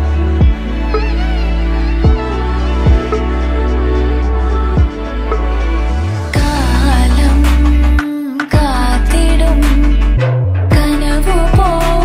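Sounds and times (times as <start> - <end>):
slow soft song: 0.0 - 12.0
bass drum hits: 2.9 - 3.1.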